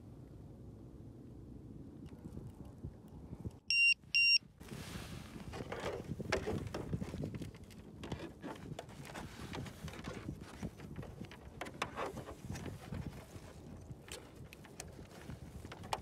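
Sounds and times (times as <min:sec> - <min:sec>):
short electronic beeps: 0:03.7 - 0:04.4
rustling and small clicks: 0:05.4 - 0:16.0.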